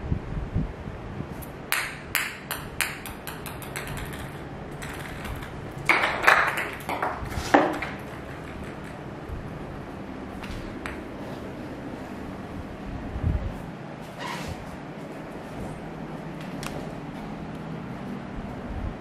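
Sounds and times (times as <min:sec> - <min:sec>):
ping-pong ball bouncing on tiles: 0:01.7 - 0:09.2, 0:10.7 - 0:11.2.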